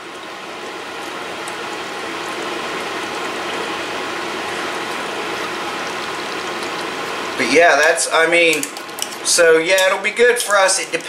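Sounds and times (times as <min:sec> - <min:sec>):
pot simmering with hiss: 0:00.0 - 0:11.0.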